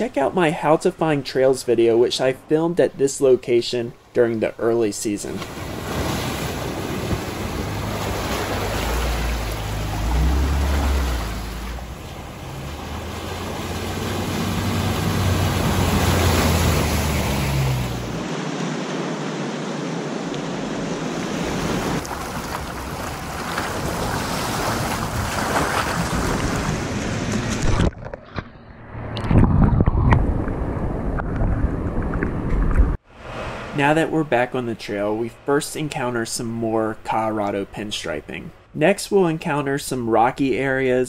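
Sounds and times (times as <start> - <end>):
water rushing against vehicle: 5.3 - 28.0, 33.1 - 34.4
water splashing around tyres: 5.4 - 18.2, 21.4 - 28.1.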